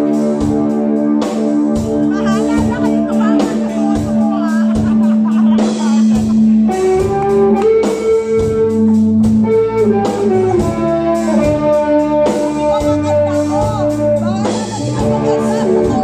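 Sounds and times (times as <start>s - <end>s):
live rock band playing: 0.0s - 16.0s
lead guitar line bending pitch: 6.0s - 16.0s.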